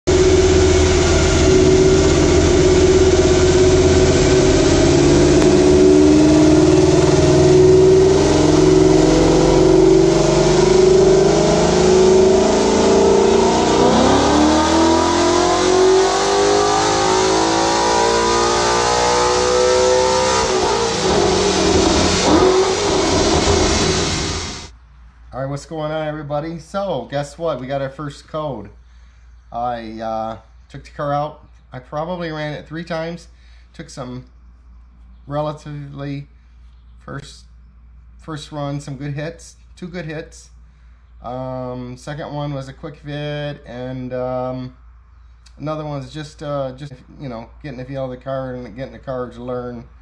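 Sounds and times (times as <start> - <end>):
car engine at full throttle: 0.0 - 24.7.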